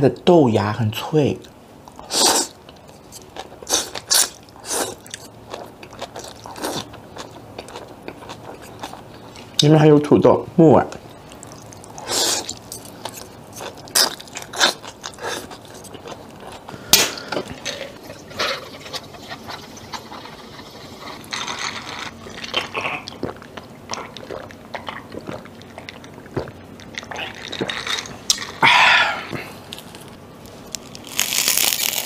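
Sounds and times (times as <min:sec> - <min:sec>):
chewing noodles with mouth clicks: 0:11.3 - 0:16.7, 0:17.6 - 0:28.6.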